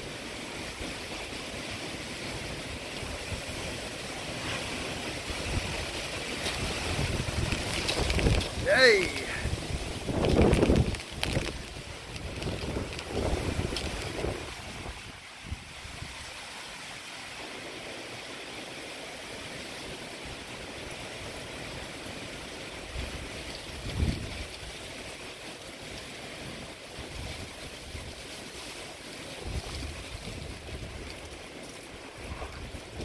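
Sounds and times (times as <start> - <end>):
gusty wind rushing through trees: 0.0 - 33.0
wind buffeting microphone: 4.6 - 16.2.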